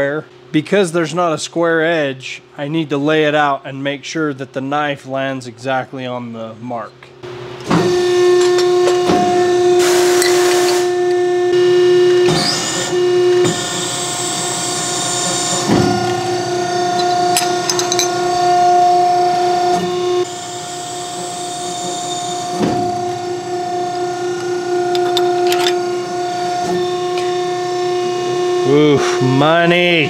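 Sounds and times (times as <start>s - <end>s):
hiss: 9.8s - 10.8s.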